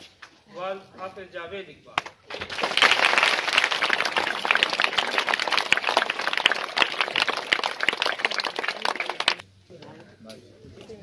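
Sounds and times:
crowd clapping: 2.3s - 9.4s.

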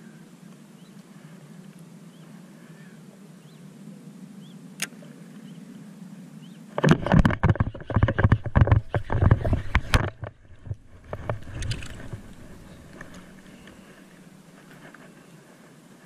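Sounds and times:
low steady hum: 0.0s - 16.0s
faint clicks: 0.5s - 1.9s, 6.8s - 15.2s.

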